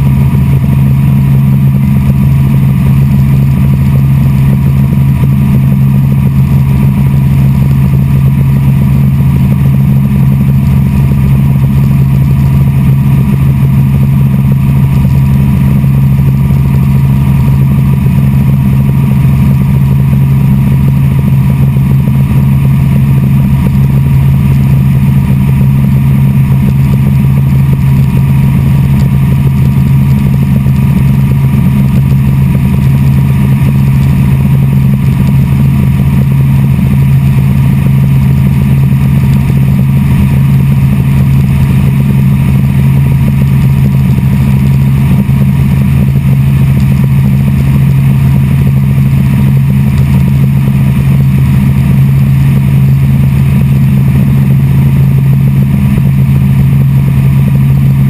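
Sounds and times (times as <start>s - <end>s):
helicopter engine and rotor drone: 0.0s - 58.0s.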